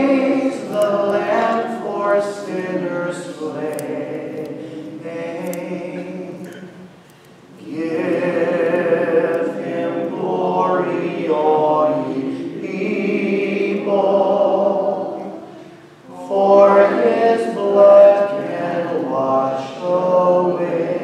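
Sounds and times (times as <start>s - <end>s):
person singing long notes: 0.0s - 6.9s.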